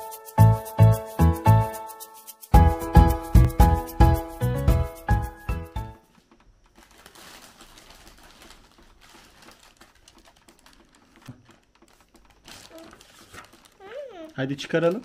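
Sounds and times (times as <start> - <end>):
music jingle with steady beat: 0.0 - 6.0
plastic bag rustling: 6.6 - 15.0.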